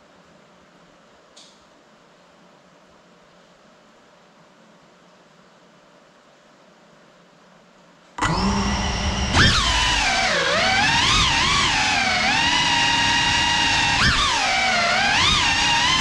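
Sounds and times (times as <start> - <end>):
drone motors whining: 8.2 - 16.0.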